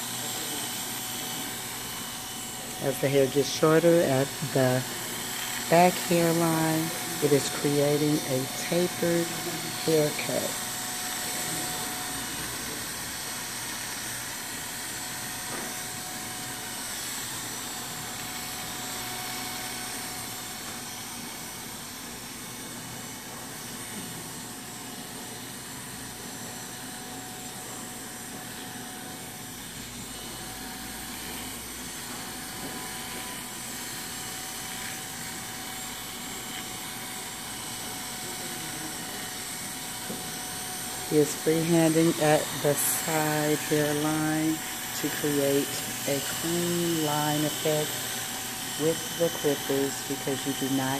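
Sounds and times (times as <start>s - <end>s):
electric hair clippers humming: 0.0s - 50.9s.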